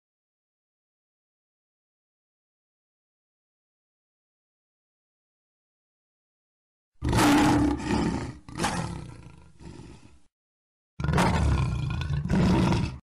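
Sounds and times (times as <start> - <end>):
lion roar: 7.0 - 10.3, 11.0 - 13.0.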